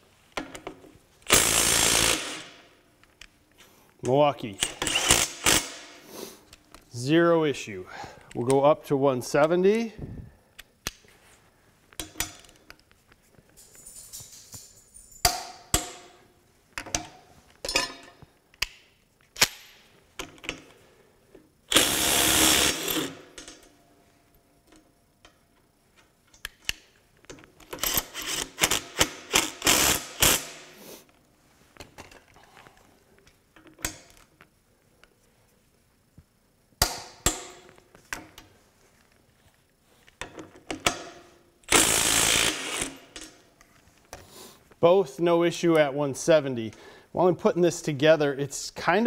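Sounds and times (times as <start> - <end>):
impact wrench hammering: 15.2 - 16.2, 36.8 - 37.7.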